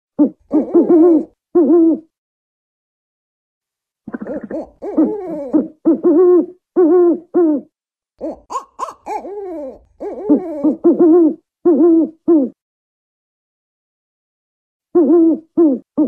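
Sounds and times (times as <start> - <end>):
owl hooting: 0.2 - 2.1, 4.1 - 12.6, 15.0 - 16.0.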